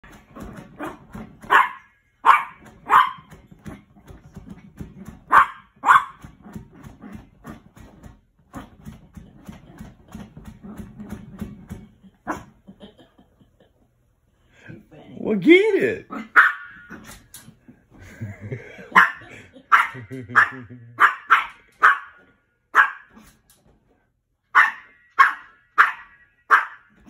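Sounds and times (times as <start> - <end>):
small dog barking: 0.8 - 3.3, 5.3 - 6.2, 16.1 - 17.0, 19.0 - 23.2, 24.6 - 26.9.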